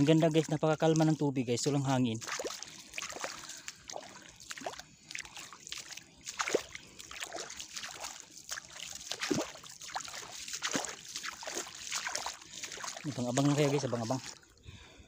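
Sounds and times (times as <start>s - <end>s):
water dripping: 0.0s - 14.6s
feet wading through water: 0.0s - 15.0s.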